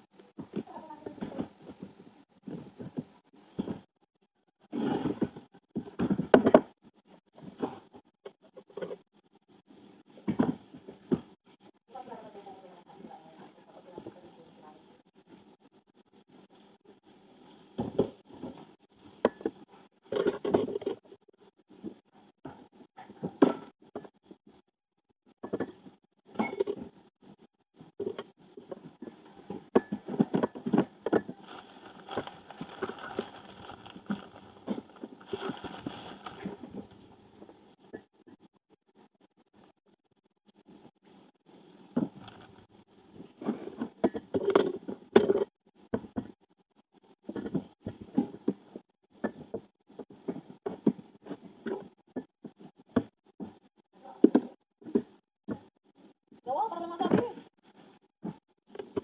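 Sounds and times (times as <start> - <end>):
plastic gloves crinkling: 31.2 - 37.2, 42.0 - 42.7.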